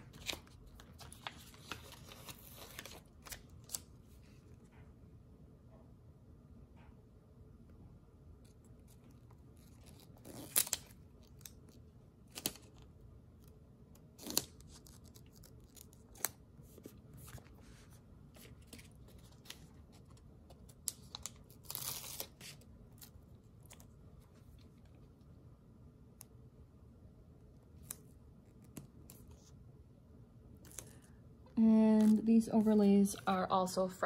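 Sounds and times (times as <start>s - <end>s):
paper rustling and peeling: 0.0s - 4.4s.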